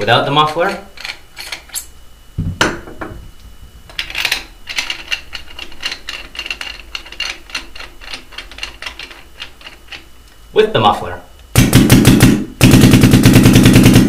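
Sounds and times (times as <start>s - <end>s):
barrel knocking on bench: 2.4s - 3.2s
small metal clicks and scrapes: 3.9s - 10.1s.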